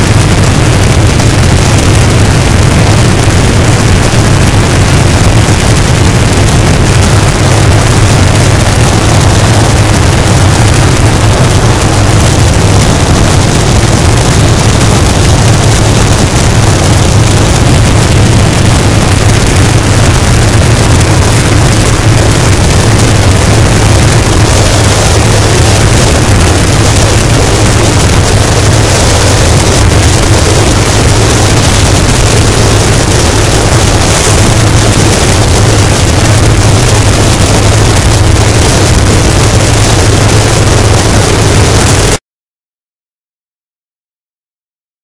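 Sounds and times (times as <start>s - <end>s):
distorted static noise: 0.0s - 42.2s
heavy low hum: 0.0s - 42.2s.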